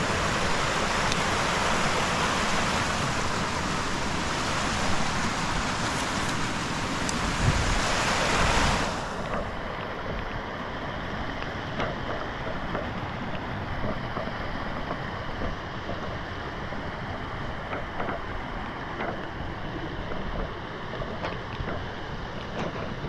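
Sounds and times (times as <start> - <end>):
steady rushing noise: 0.0 - 23.0
faint ticks and snaps: 1.0 - 1.2, 11.3 - 16.3.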